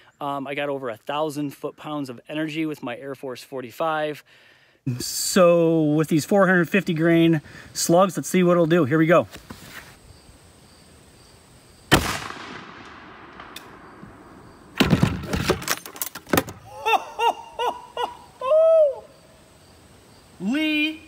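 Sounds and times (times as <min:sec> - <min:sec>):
air rifle shot: 0:11.9 - 0:15.7
man laughing: 0:16.6 - 0:19.1.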